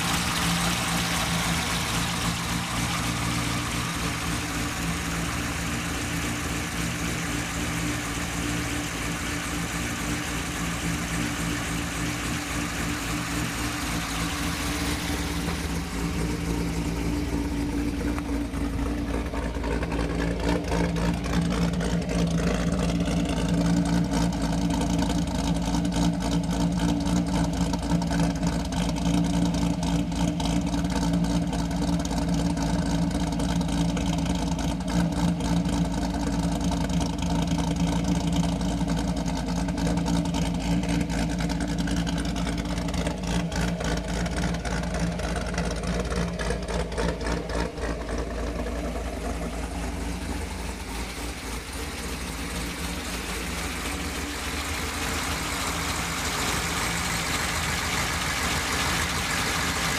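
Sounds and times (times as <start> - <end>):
car engine idling: 0.0 - 59.9.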